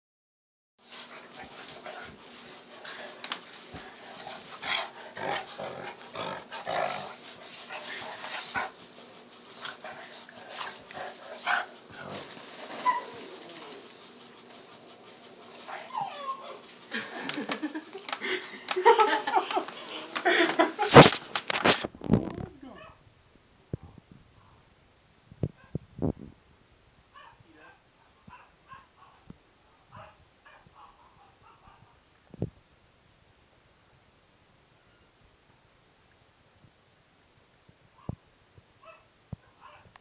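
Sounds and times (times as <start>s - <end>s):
dogs scuffling: 0.8s - 22.2s.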